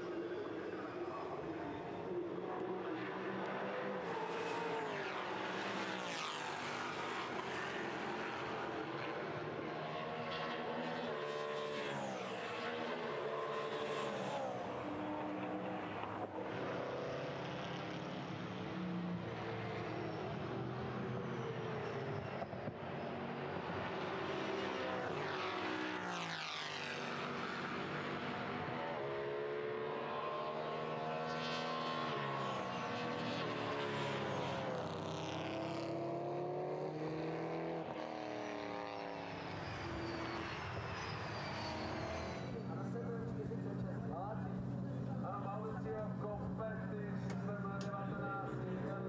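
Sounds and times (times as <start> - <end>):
race car engines at full throttle: 0.0 - 49.0
race car passing close: 0.2 - 18.2, 23.5 - 43.8.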